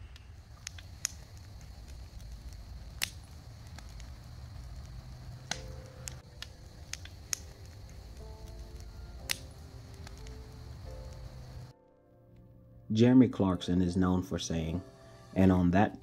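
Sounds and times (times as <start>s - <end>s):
bonfire crackling and popping: 0.0s - 11.7s
low fire rumble: 0.0s - 11.7s
soft music: 5.5s - 16.0s.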